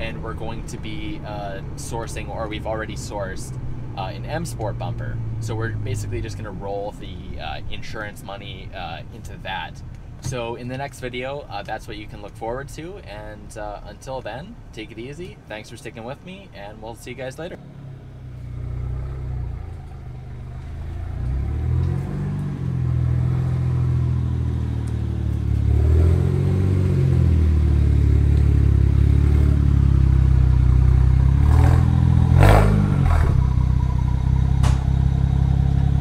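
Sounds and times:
exhaust crackle: 0.0 - 36.0
car engine revving: 17.6 - 36.0.

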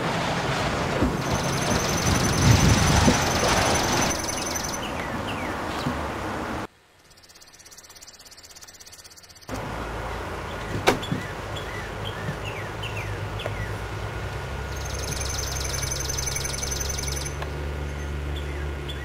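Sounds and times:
loud noisy rumble: 0.0 - 4.5
fast high pulsing chirr: 1.2 - 4.9, 14.7 - 17.4
bird chirps: 1.2 - 5.9, 7.0 - 9.5, 14.7 - 19.0.

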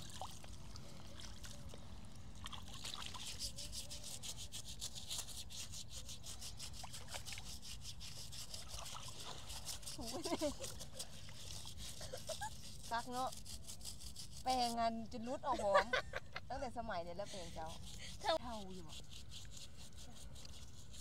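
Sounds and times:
hands scrubbing foot in water: 0.0 - 14.7, 17.2 - 21.0.

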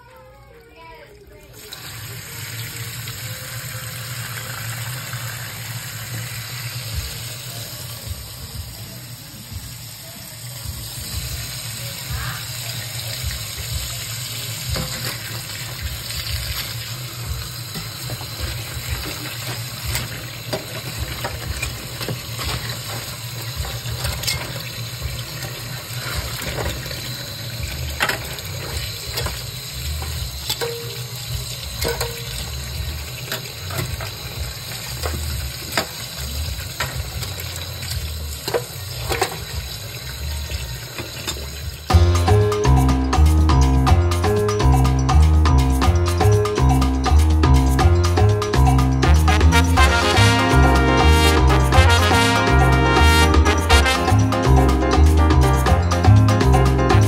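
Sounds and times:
tap water running into sink: 1.4 - 10.0, 10.6 - 42.0.

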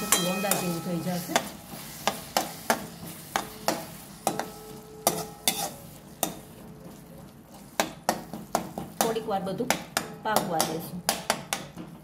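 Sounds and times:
spatula scraping metal pan: 0.0 - 6.3
faint sizzle: 0.0 - 9.6.

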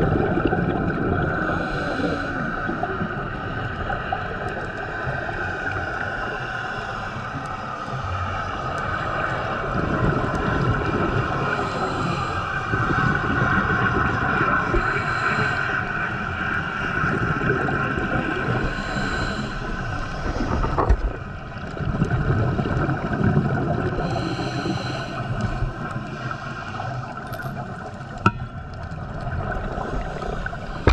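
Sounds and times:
bubbling gurgling exhales: 0.0 - 30.9
regulator hissing inhale: 1.4 - 2.8, 11.5 - 12.7, 14.7 - 16.0, 18.6 - 20.5, 24.0 - 27.2.

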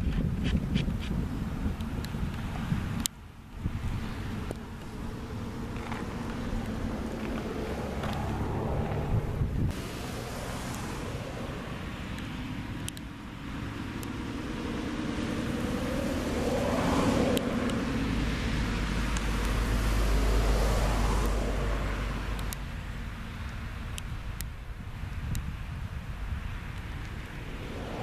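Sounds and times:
deep low rumble: 3.6 - 9.8, 26.9 - 28.0
car passing by: 3.6 - 23.8, 26.2 - 28.0.

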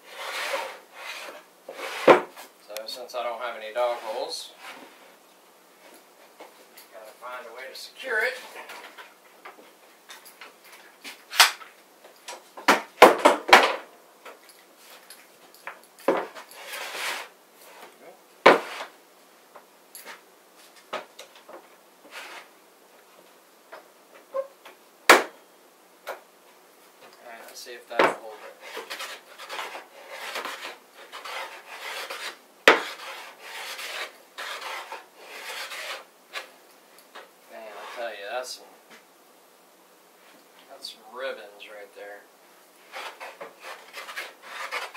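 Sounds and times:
hand plane rasping along board: 0.0 - 2.3, 28.4 - 36.1, 42.9 - 44.9
short scraping noise: 0.0 - 2.4, 16.4 - 17.9.

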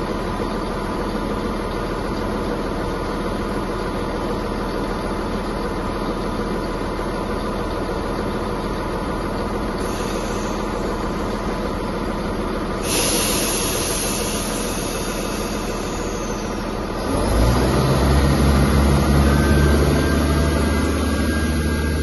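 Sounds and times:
deep engine drone: 0.0 - 22.0
train engine idling: 0.0 - 22.0
hiss: 9.8 - 11.5, 12.8 - 16.9.

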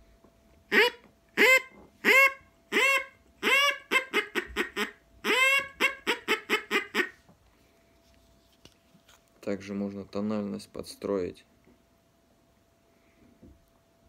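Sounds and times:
duck call quacks: 0.7 - 7.2.

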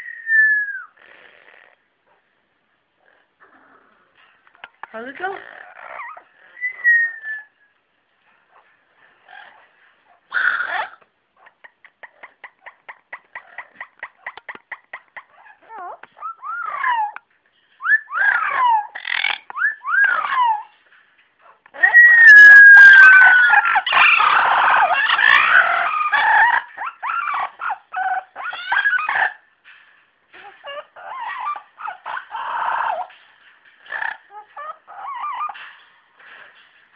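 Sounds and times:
parrots calling: 4.6 - 7.6, 9.2 - 20.8, 21.4 - 29.5, 30.3 - 36.6.

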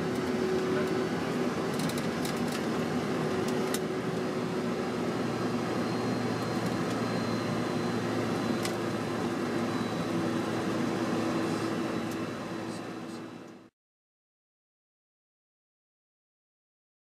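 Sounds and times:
aircraft engine and airflow noise: 0.0 - 13.7
faint high whine: 4.3 - 13.7.

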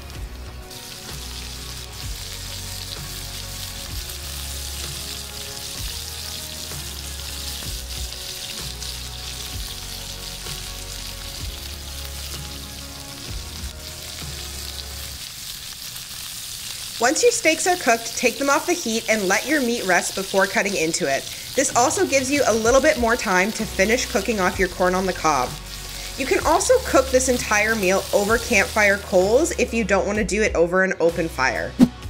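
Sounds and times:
background music with bass: 0.0 - 15.2, 21.8 - 32.0
steaks sizzling in oil: 0.0 - 29.7.

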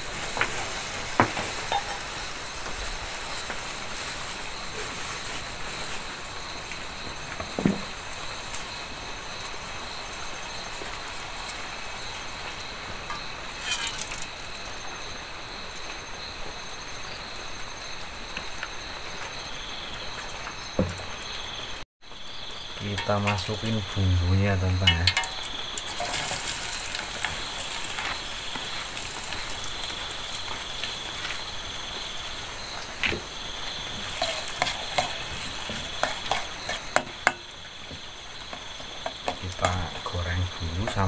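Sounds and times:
gas stove burner hissing: 0.0 - 14.5, 22.7 - 41.0
insects chirping: 0.0 - 41.0.

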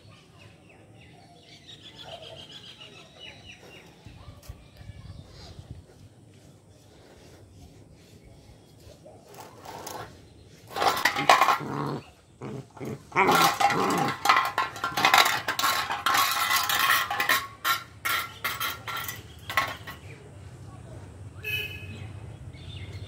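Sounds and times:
stick scraping on concrete: 3.6 - 20.2
puppy growling: 10.9 - 14.3.

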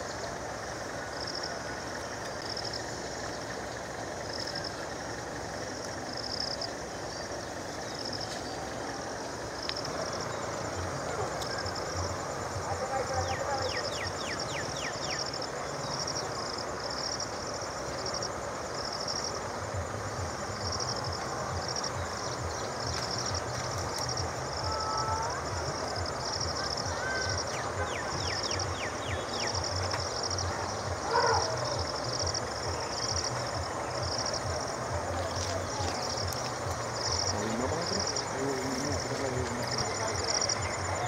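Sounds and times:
high insect chirp: 0.0 - 41.0
bird chirps: 13.2 - 16.4, 26.4 - 34.6.

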